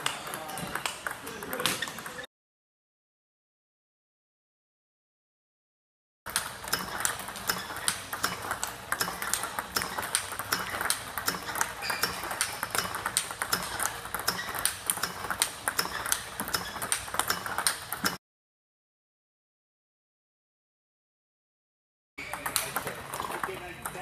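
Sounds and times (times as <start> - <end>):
table tennis balls clicking: 0.0 - 2.3, 6.3 - 18.2, 22.2 - 24.0.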